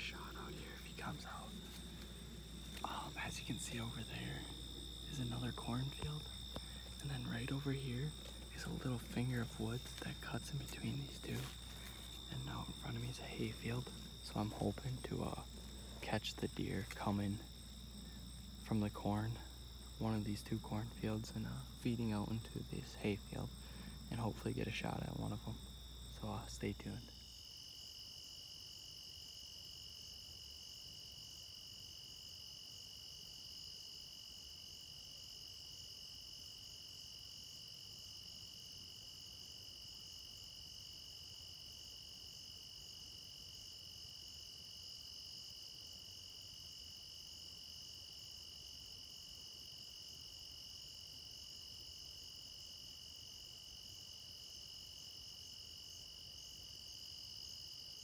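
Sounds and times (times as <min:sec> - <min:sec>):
crickets and insects trilling: 0:00.0 - 0:58.0.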